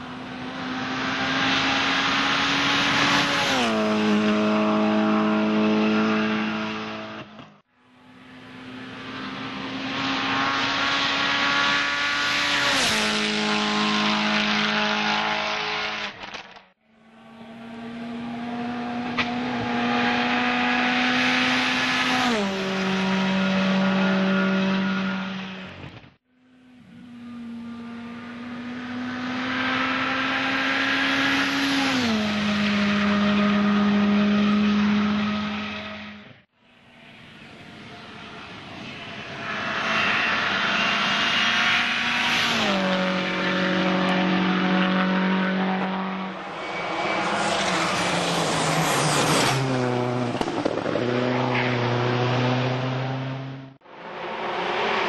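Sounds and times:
rally cars passing at high revs: 0:00.0 - 0:55.0.

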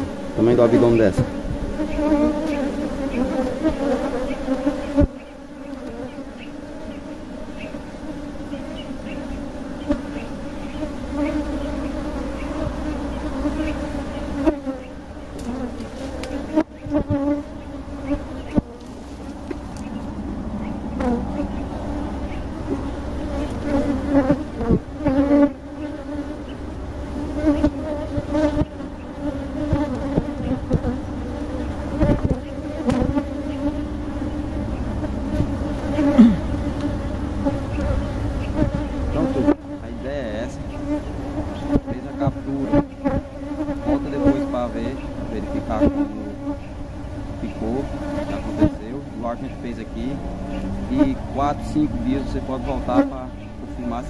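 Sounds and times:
honeybees buzzing: 0:00.0 - 0:54.0
knocks on wooden hive box: 0:29.7 - 0:30.9, 0:32.0 - 0:33.2.

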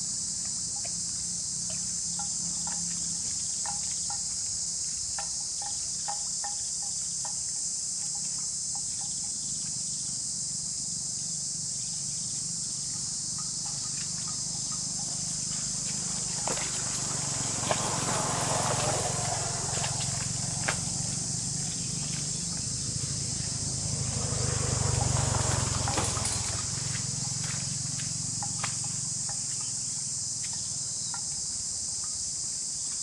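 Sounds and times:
high-pitched insect chorus: 0:00.0 - 0:33.0
water buffalo grazing clicks: 0:00.5 - 0:09.6, 0:13.0 - 0:29.8.

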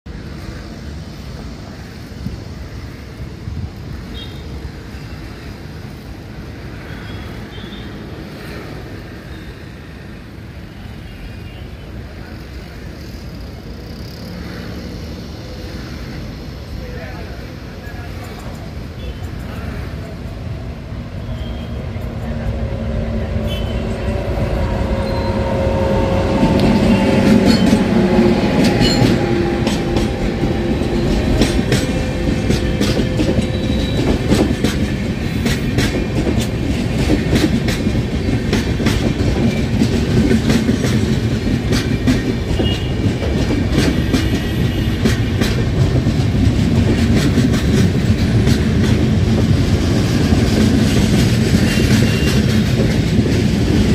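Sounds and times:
train wheel rumble: 0:00.1 - 0:53.9
locomotive whine: 0:20.1 - 0:46.4
wheels clacking over rail joints: 0:23.3 - 0:53.9.

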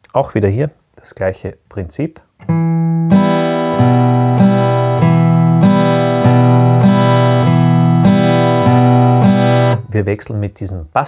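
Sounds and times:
acoustic guitar strumming: 0:02.4 - 0:10.0.

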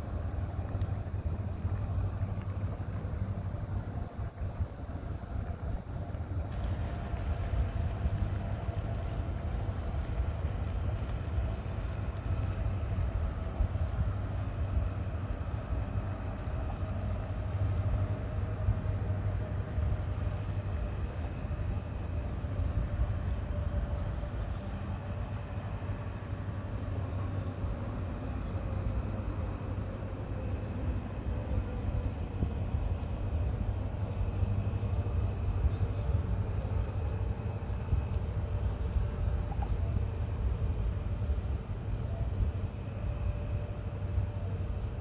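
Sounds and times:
faint whine: 0:00.0 - 0:45.0
vehicle engine rumble: 0:00.0 - 0:45.0.

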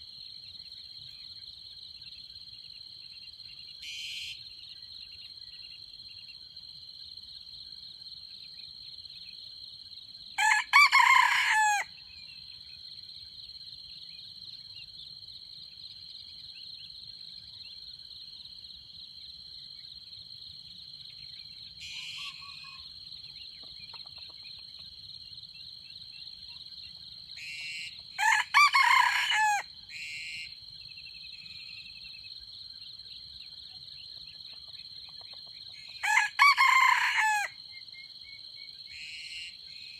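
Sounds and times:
high drone of insects: 0:00.0 - 0:39.9
rooster crowing: 0:10.4 - 0:12.0, 0:28.2 - 0:29.7, 0:36.0 - 0:37.6.

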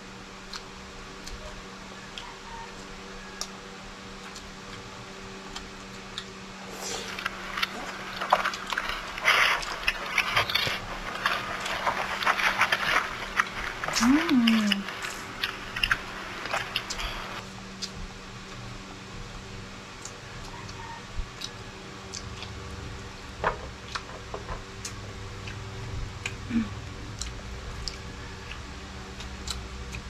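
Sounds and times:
steady low hum: 0:00.0 - 0:30.0
close eating sounds: 0:00.2 - 0:30.0
person humming: 0:13.8 - 0:15.0, 0:26.5 - 0:26.8
faint mouth clicks: 0:16.7 - 0:18.0.

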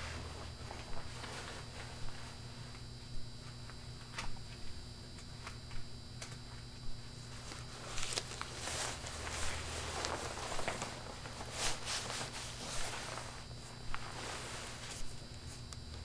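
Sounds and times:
banknotes rustling: 0:07.3 - 0:15.6.

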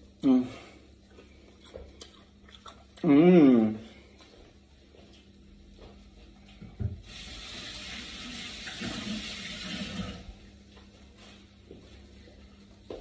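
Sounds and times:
kitchen water tap running: 0:07.0 - 0:10.4.

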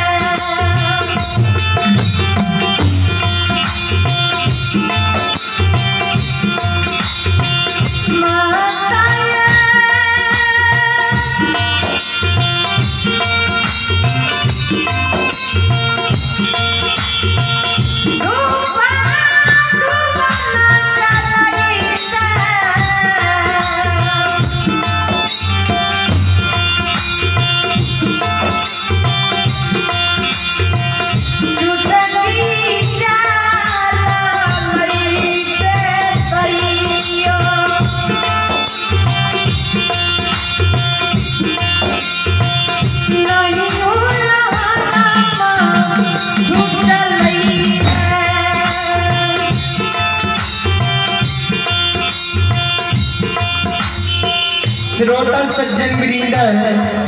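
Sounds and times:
keyboard gliding melody: 0:00.0 - 0:08.0, 0:44.6 - 0:55.6
steady percussion beat: 0:00.0 - 0:57.0.

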